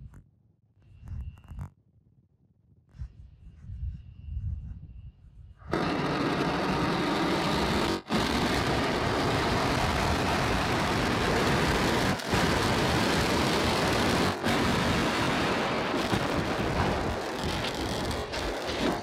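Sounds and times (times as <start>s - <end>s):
rocket engines firing: 5.7s - 19.0s.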